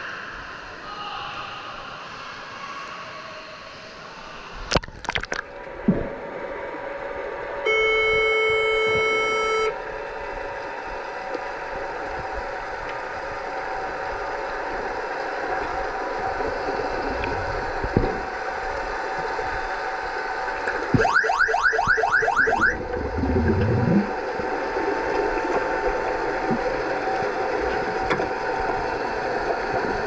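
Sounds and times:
water splashing: 4.7s - 6.2s, 20.1s - 30.0s
underwater buzzer horn tone: 7.6s - 9.8s, 21.0s - 24.0s.

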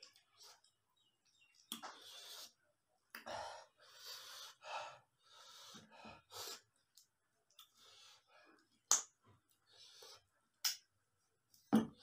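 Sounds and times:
man's sharp hissing breaths: 1.9s - 2.6s, 3.7s - 6.7s.

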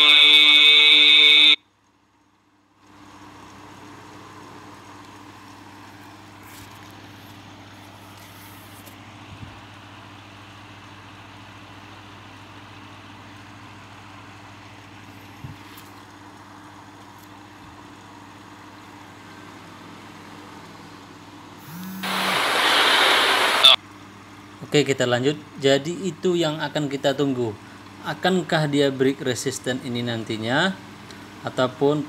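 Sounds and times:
steady low hum: 0.0s - 32.0s
faint hiss: 21.8s - 23.8s.

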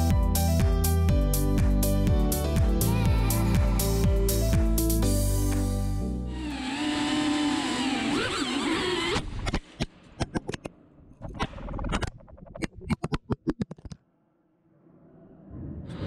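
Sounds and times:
drone motor whine: 6.3s - 9.9s.

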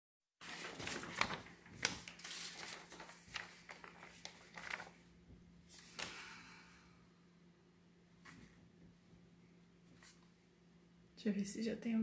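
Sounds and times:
faint steady hum: 0.5s - 12.0s.

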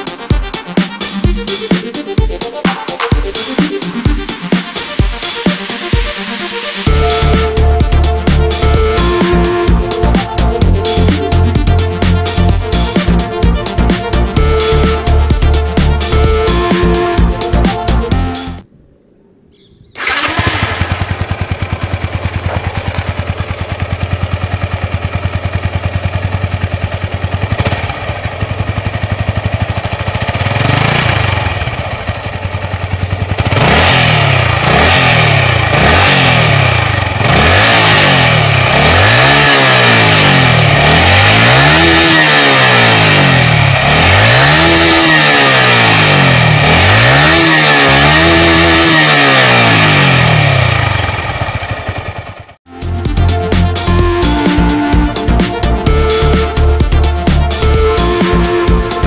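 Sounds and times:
motorcycle engine revving: 2.7s - 18.4s, 19.9s - 59.0s
motorcycle engine idling: 19.8s - 59.0s.

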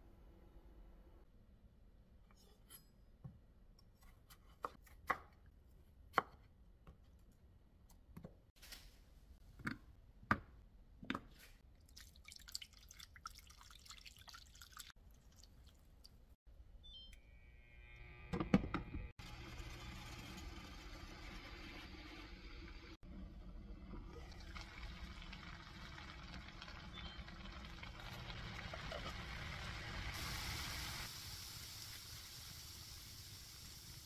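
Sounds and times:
water dripping: 11.7s - 16.4s.

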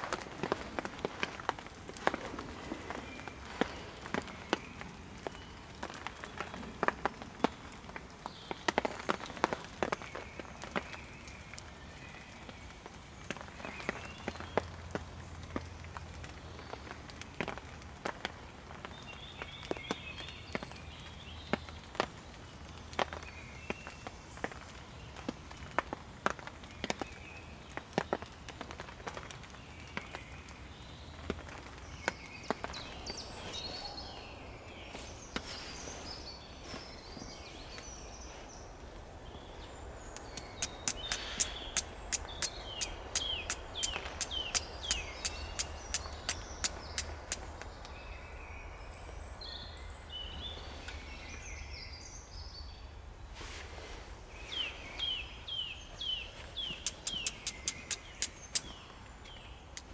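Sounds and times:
steady outdoor background: 0.0s - 59.9s
sharp ticks: 40.2s - 47.5s, 56.8s - 58.7s
short bird chirps: 40.3s - 47.4s, 56.6s - 58.9s.

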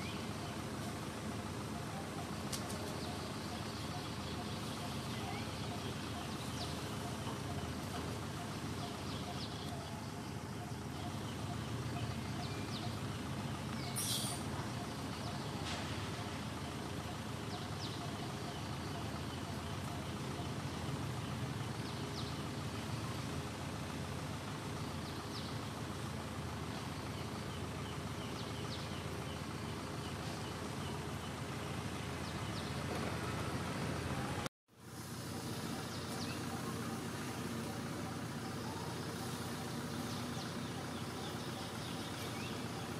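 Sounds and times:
low outdoor rumble: 0.0s - 42.9s.

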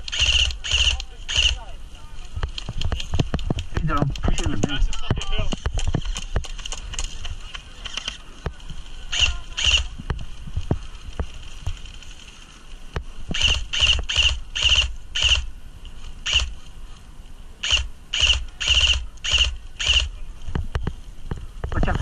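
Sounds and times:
airsoft rifle bursts: 0.0s - 1.6s, 9.1s - 9.9s, 13.3s - 15.5s, 16.2s - 16.6s, 17.6s - 20.1s.

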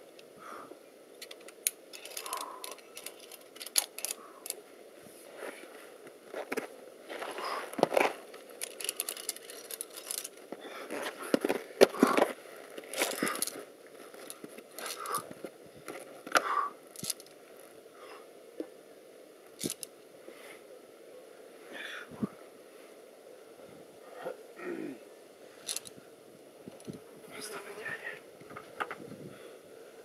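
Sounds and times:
climbing gear scraping and clicking: 1.2s - 4.6s, 6.3s - 17.3s, 19.6s - 19.9s, 25.6s - 25.9s.

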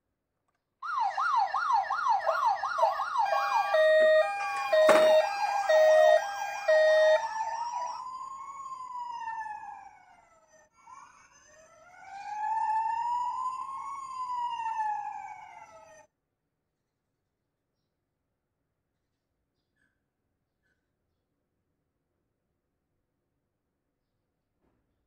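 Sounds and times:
two-tone siren: 0.8s - 10.0s, 12.2s - 15.8s
fast yelp siren: 0.8s - 10.3s, 11.9s - 16.1s
slow wailing siren: 0.8s - 10.4s, 11.8s - 16.1s.

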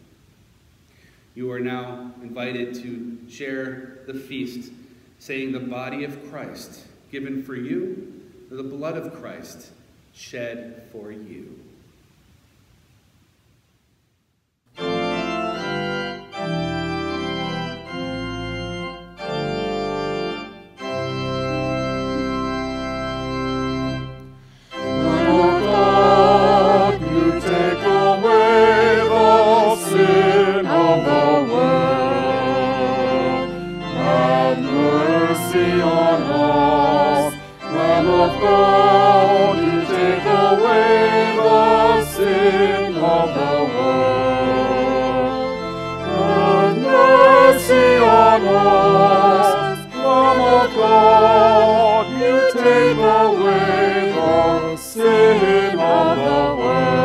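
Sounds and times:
organ playing chords: 14.7s - 57.0s
voices singing a hymn: 14.8s - 57.0s.

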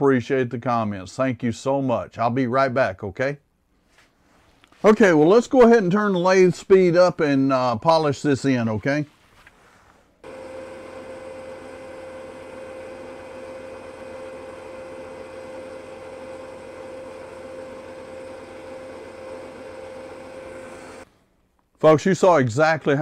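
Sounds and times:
wood lathe motor whine: 10.2s - 21.0s.

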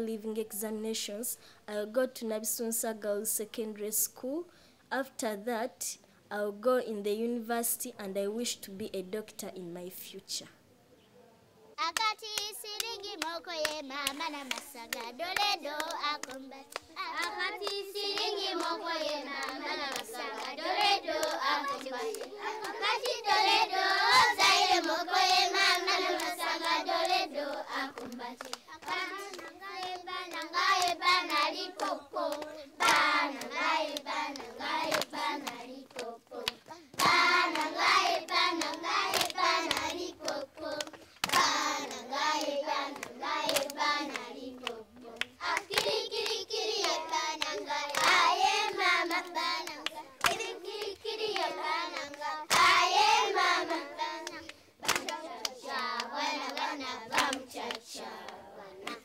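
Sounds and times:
hand claps: 11.8s - 59.0s
children singing: 15.2s - 59.0s.

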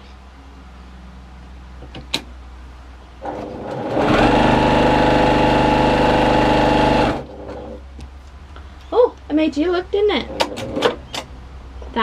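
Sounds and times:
sewing machine whirring: 3.2s - 7.8s.

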